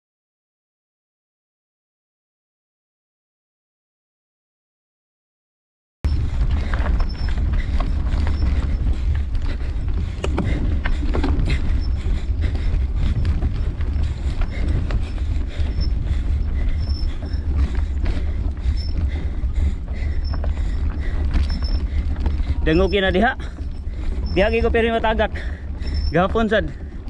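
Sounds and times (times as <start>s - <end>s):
bike rumbling over stones: 6.1s - 27.0s.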